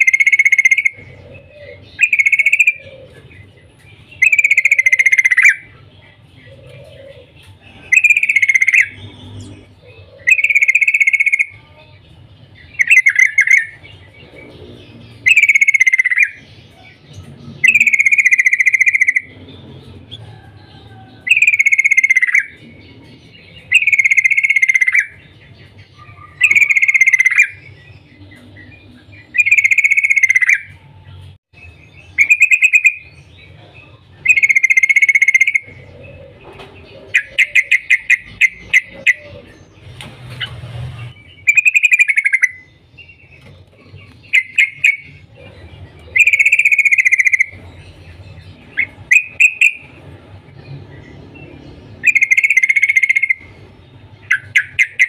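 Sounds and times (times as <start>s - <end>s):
bulbul bubbly calls: 0.0s - 3.4s, 4.2s - 5.7s, 6.5s - 11.6s, 15.2s - 16.4s, 17.6s - 19.3s, 26.1s - 27.6s, 34.2s - 36.2s, 44.0s - 47.7s, 52.0s - 53.4s.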